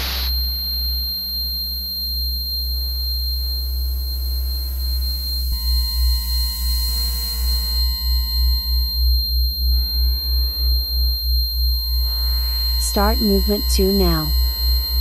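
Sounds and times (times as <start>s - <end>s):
high sine tones: 0.0s - 15.0s
deep electronic drone: 3.0s - 15.0s.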